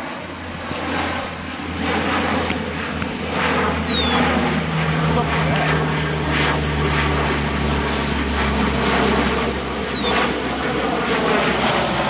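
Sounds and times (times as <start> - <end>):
propeller plane droning overhead: 0.0 - 12.0.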